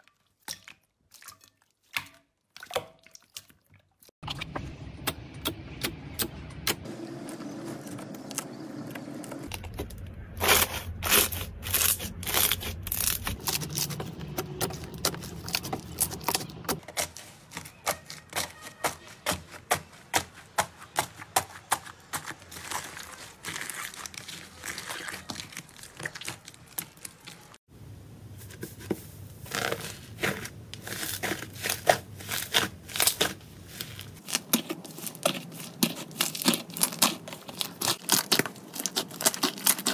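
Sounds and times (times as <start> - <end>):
slime crackling and popping: 9.5 - 14.0, 22.5 - 27.6, 29.5 - 39.9.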